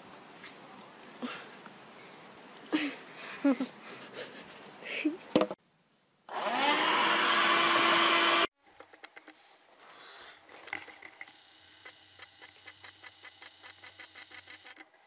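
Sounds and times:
small appliance motor whine: 6.3s - 8.5s.

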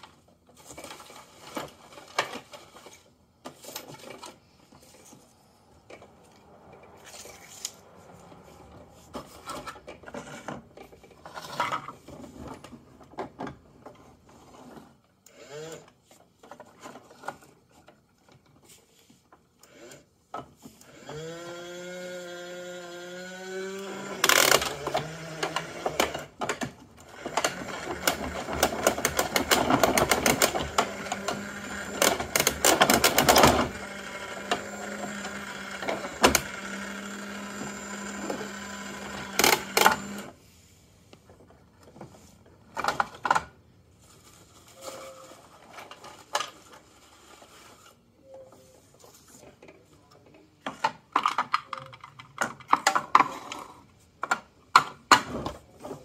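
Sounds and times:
toy truck electronic engine sound: 27.2s - 40.3s.

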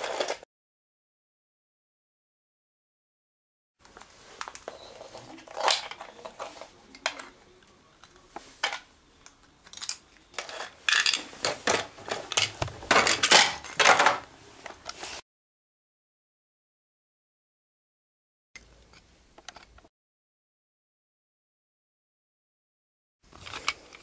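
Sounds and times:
plastic toys clattering on wooden floor: 0.0s - 0.4s, 4.4s - 7.3s, 8.4s - 8.9s, 9.6s - 15.0s.

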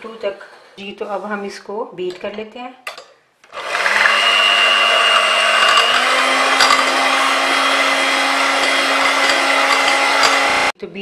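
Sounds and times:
electric hand mixer running: 3.5s - 10.8s.

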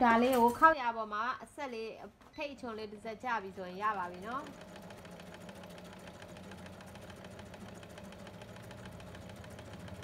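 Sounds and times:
sewing machine running: 3.4s - 10.0s.

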